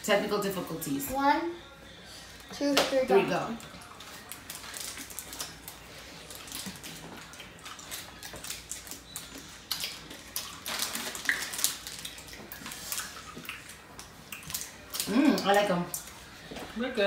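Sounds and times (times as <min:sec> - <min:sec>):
candy wrappers crinkling: 0:03.6 - 0:13.0.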